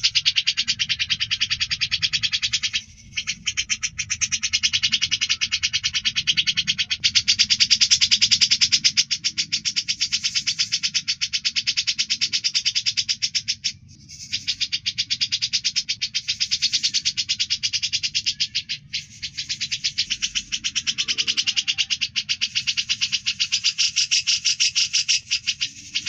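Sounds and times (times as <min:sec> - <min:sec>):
bird rattling call: 0:00.0 - 0:26.0.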